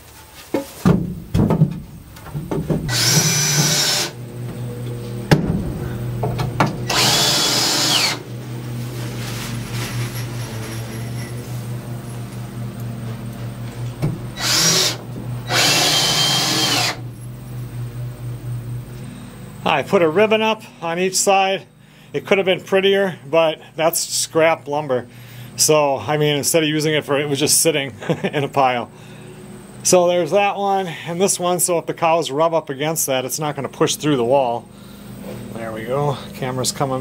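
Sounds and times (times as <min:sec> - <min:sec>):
steady low hum: 0:00.0 - 0:37.0
power drill driving screws: 0:02.9 - 0:04.2, 0:06.8 - 0:08.2, 0:14.4 - 0:17.0.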